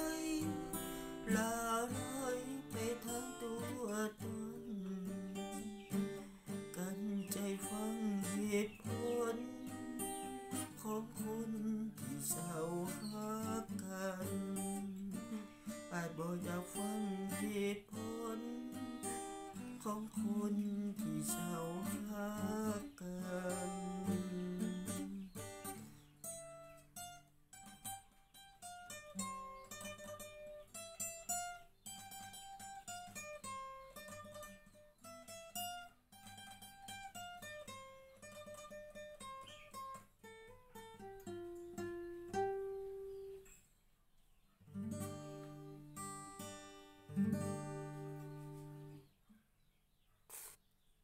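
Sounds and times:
strummed guitar chords: 0.0 - 26.6
acoustic guitar plucked melody: 0.0 - 43.7, 44.4 - 49.3.

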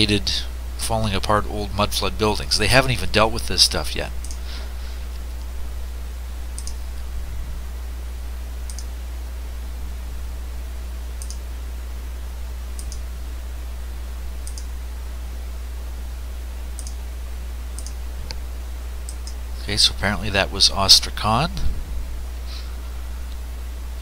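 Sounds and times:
low electrical hum: 0.0 - 24.0
computer mouse clicking: 6.6 - 6.8, 8.7 - 8.9, 11.2 - 11.4, 12.8 - 13.0, 14.4 - 14.7, 16.8 - 17.0, 17.8 - 18.4, 19.1 - 19.4.

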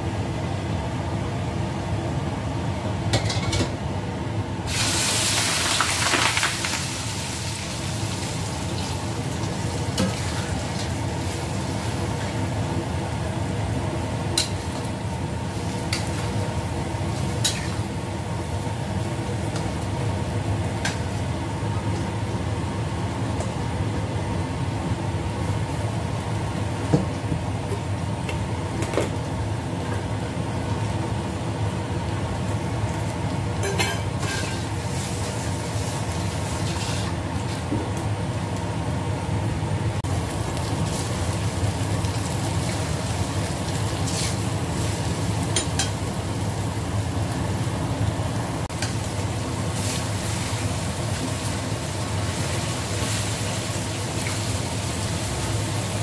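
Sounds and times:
food frying in a wok: 0.1 - 56.0
metal spatula scraping wok: 34.2 - 34.7.

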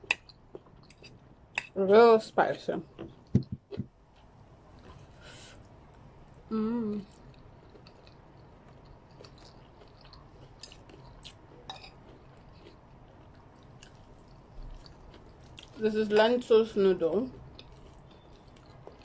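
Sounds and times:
chewing with mouth clicks: 7.0 - 16.3, 17.3 - 19.0.

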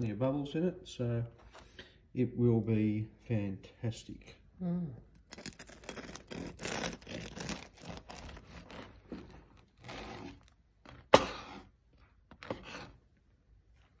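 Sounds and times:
bread knife sawing crust: 5.8 - 10.5.

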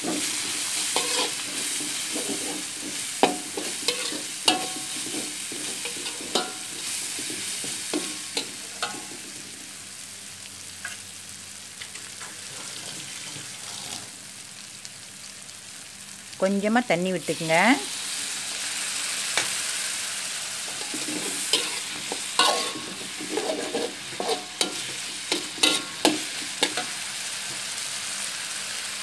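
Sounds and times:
metal spatula scraping a pan: 0.0 - 9.3, 12.3 - 14.1, 20.7 - 27.0
food sizzling in hot oil: 0.0 - 29.0.

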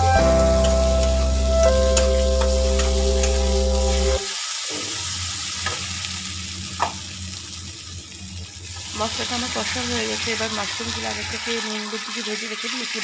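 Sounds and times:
background music of held notes: 0.0 - 4.2
food frying and sizzling: 0.0 - 13.0.

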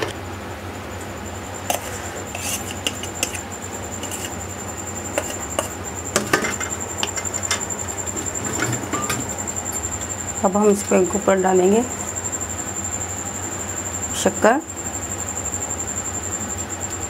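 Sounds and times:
faint high whine: 0.0 - 17.0
steady low hum: 0.0 - 17.0
fork scraping a plate: 1.7 - 4.4, 5.1 - 7.6.

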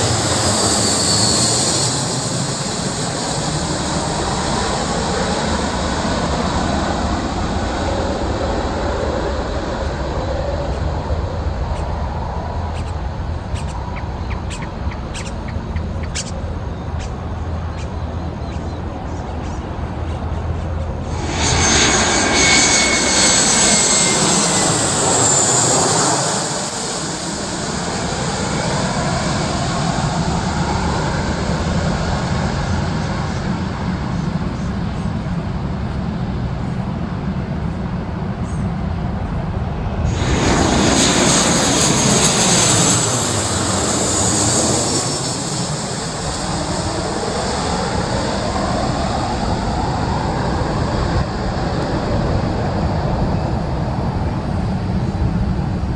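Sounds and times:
airliner engines passing: 0.0 - 55.9.

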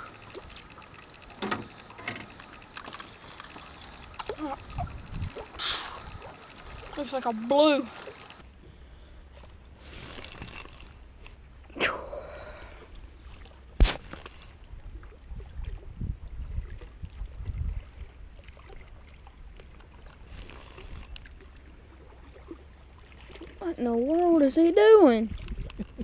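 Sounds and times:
steady low rumble: 0.0 - 8.4.

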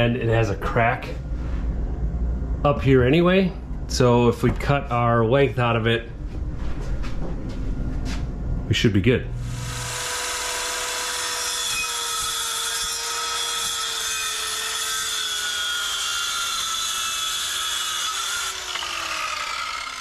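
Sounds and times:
circular saw cutting wood: 9.4 - 20.0
motor winding down: 9.4 - 20.0.

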